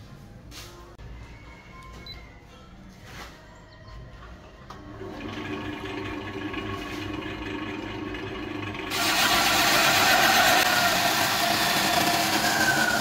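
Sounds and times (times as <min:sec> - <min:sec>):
lathe motor humming: 0:04.9 - 0:13.0
tool cutting spinning wood: 0:05.0 - 0:13.0.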